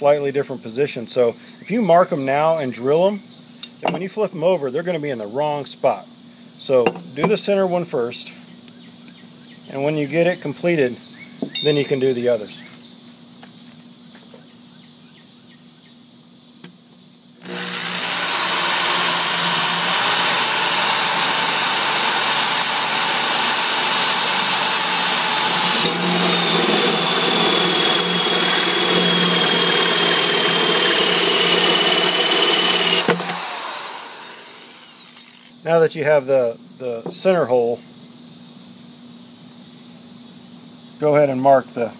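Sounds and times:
electric drill with hole saw whirring: 17.4 - 35.5.

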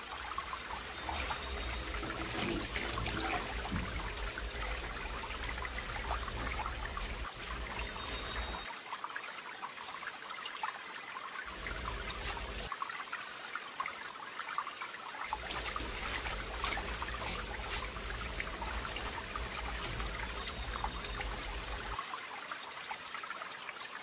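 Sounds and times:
water splashing in a bucket: 0.0 - 8.7, 11.5 - 12.8, 15.3 - 22.0.

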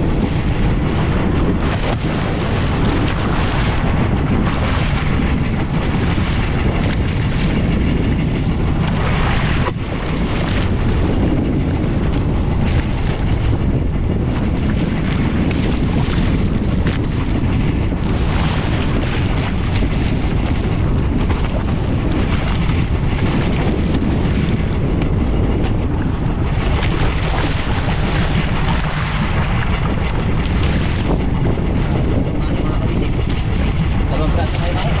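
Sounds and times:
boat engine running: 0.0 - 35.0
water noise: 0.0 - 35.0
wind buffeting microphone: 0.0 - 35.0.

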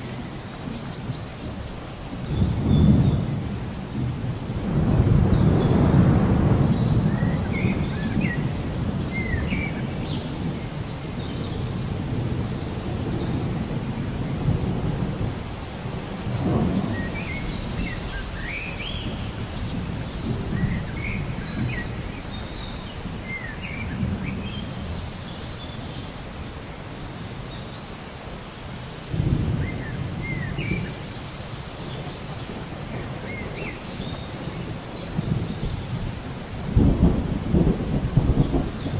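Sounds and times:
steady rain: 0.0 - 38.9
low rolling thunder: 2.2 - 25.4, 29.1 - 31.1, 31.8 - 38.9
birds chirping: 15.9 - 36.1.

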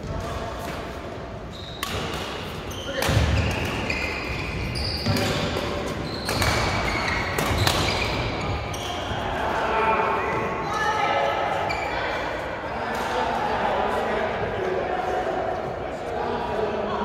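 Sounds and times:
players' voices: 0.0 - 17.0
shoes squeaking on court: 1.4 - 9.2
racket hitting shuttlecock: 1.8 - 3.9, 5.0 - 8.3.

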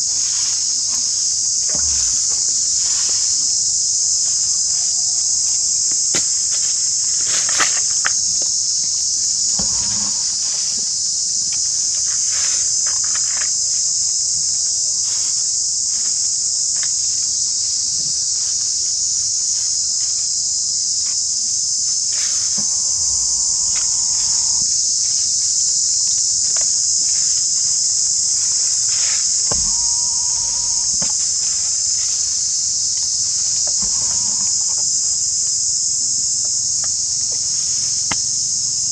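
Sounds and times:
insects buzzing: 0.0 - 38.9.

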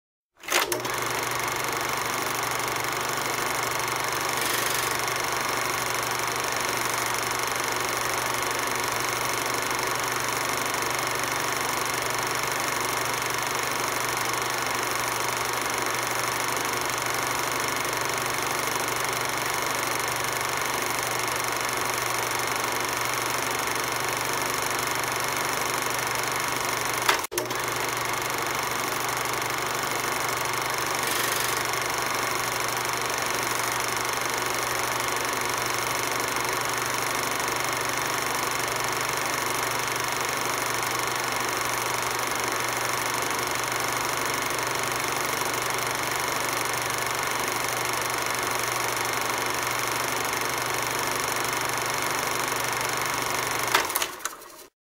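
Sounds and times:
film projector clattering: 0.4 - 54.8
sharp click: 27.0 - 27.5.

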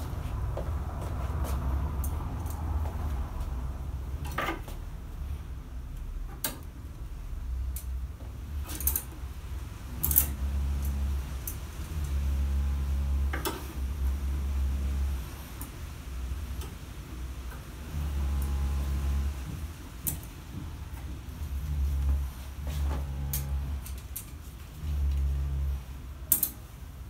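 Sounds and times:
steady low rumble: 0.0 - 27.0
plastic hangers clicking on rail: 26.3 - 26.6.

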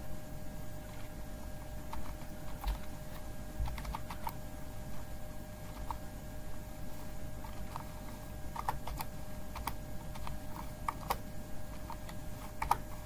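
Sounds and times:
faint background tone: 0.0 - 13.0
keyboard typing: 1.8 - 4.4, 5.6 - 6.0, 7.4 - 13.0.

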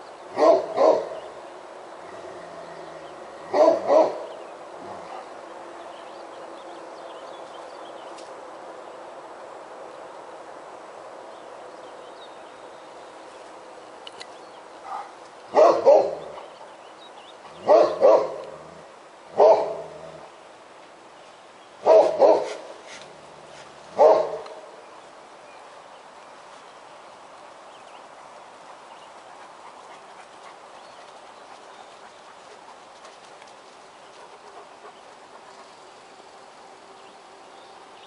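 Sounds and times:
dog barking loudly: 0.4 - 1.2, 3.5 - 4.3, 14.8 - 16.4, 17.5 - 18.5, 19.3 - 20.0, 21.8 - 22.7, 23.9 - 24.6.

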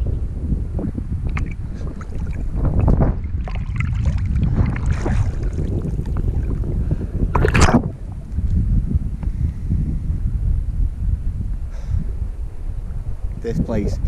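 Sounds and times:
wind on microphone: 0.0 - 14.0
water splashing and sloshing: 1.2 - 8.6.

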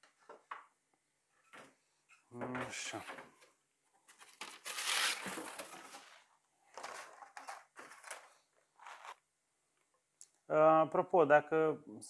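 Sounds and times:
wax sheet crinkling and rustling: 4.1 - 9.3.

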